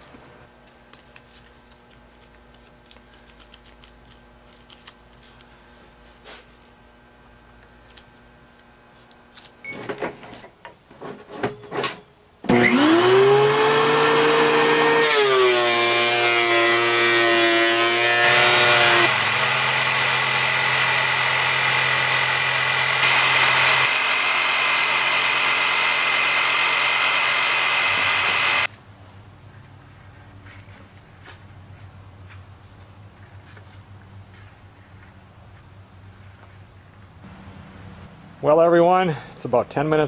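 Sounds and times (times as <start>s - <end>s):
electric jigsaw cutting wood: 12.5s - 28.7s.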